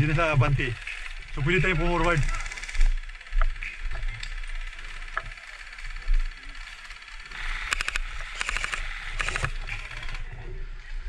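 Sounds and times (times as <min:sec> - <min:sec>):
airsoft guns firing bursts: 0:00.0 - 0:03.3.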